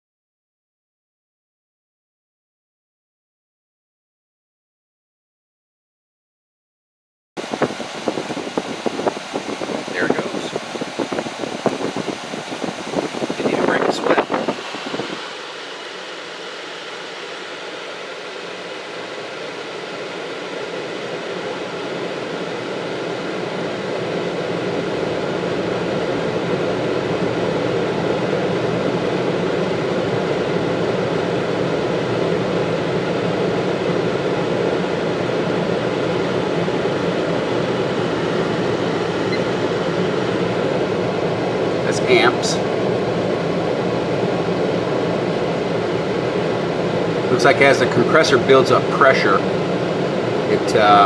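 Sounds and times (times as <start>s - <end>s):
window air conditioner running: 7.4s - 51.0s.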